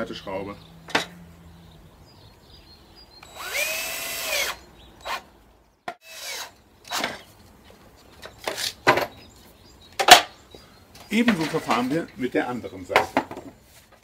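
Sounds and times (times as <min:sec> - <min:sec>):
cordless drill whining: 0:03.2 - 0:05.2.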